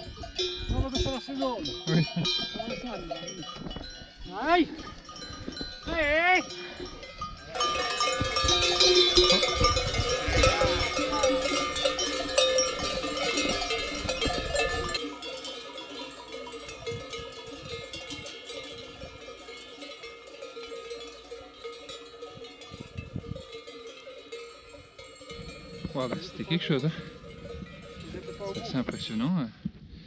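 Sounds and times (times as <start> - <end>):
sheep bells clanking: 0.0 - 29.4.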